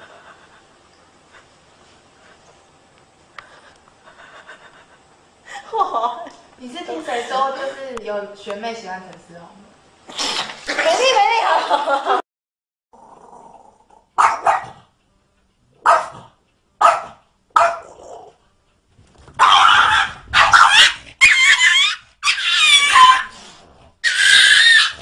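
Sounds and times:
dog barking and whining: 14.2 - 14.8, 15.8 - 18.3, 19.4 - 23.4, 24.0 - 25.0.

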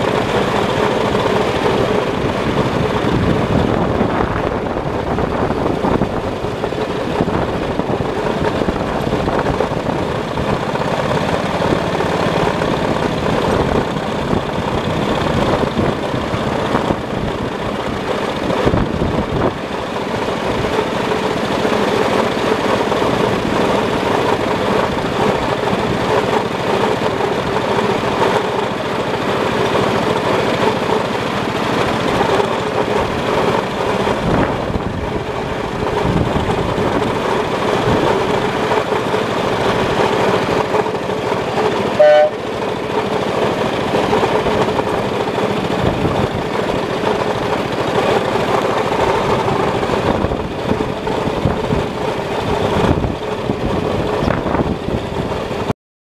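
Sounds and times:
miniature locomotive running: 0.0 - 55.7.

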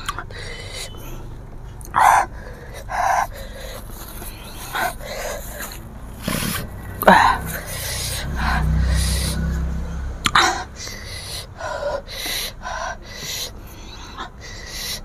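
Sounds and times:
woman panting: 0.0 - 15.0.

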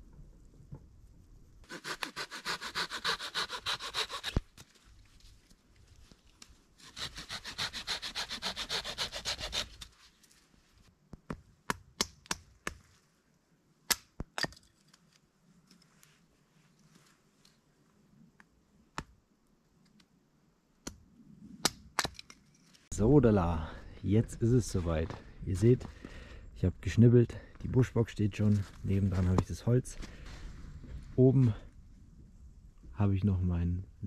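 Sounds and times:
hand saw cutting branch: 1.7 - 4.5, 6.8 - 9.9
hatchet splitting firewood: 1.7 - 4.8, 6.8 - 9.9.

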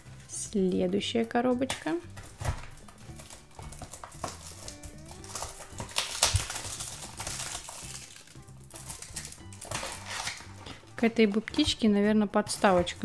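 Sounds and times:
background music: 0.0 - 13.0
sharp crackle: 2.8 - 10.6.

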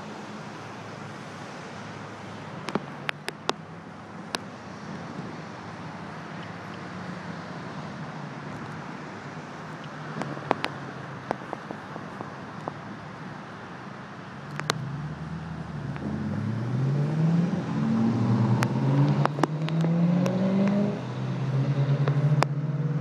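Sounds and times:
traffic hum: 0.0 - 23.0
car engine accelerating: 14.4 - 23.0.

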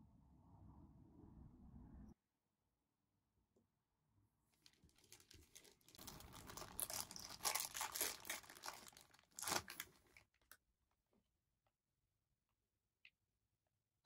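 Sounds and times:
plastic bag crinkling: 4.6 - 10.5.

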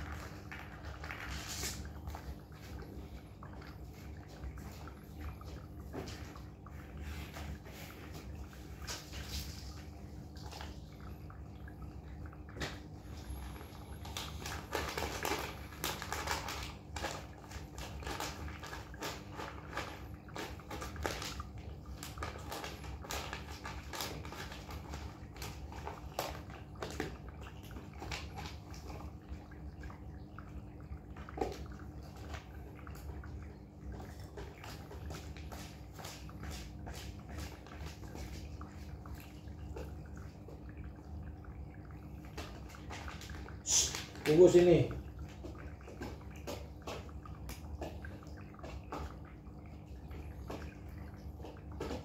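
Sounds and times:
steady low hum: 0.0 - 18.6
cats chewing food: 0.0 - 52.0.

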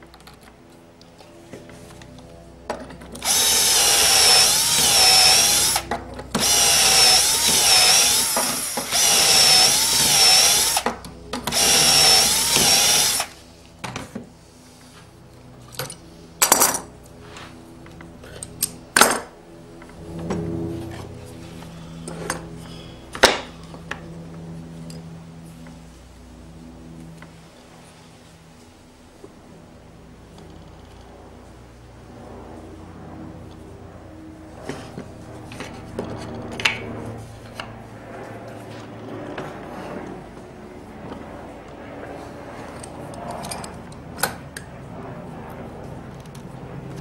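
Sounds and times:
electric drill boring into wood: 3.2 - 13.4.

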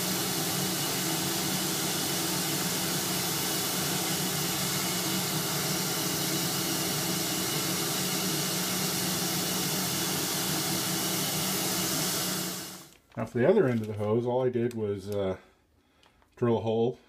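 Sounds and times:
shop vac running: 0.0 - 13.0.

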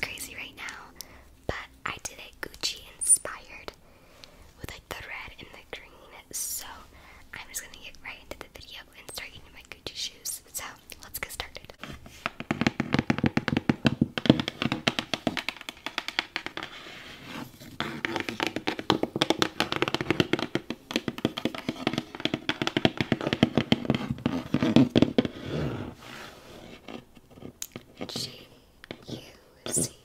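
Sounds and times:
fingernails tapping on cardboard box: 12.2 - 16.8, 17.6 - 25.4.

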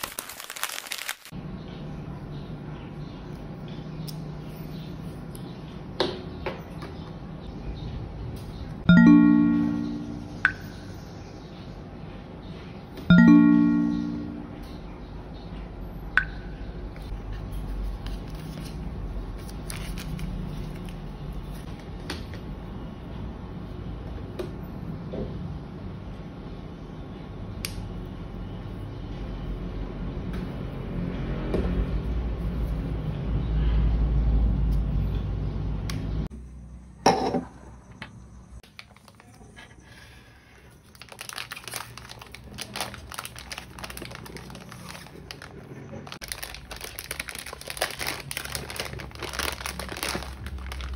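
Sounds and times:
hands rustling cardboard packaging: 0.0 - 1.3, 40.8 - 50.9.

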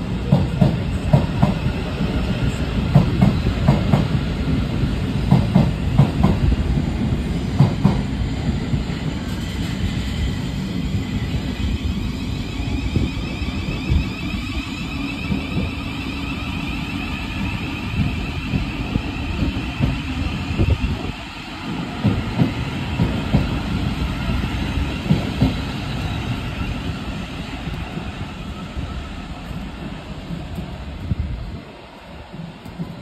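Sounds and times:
electric train rumbling on bridge: 0.0 - 33.0
wind buffeting microphone: 17.2 - 33.0.

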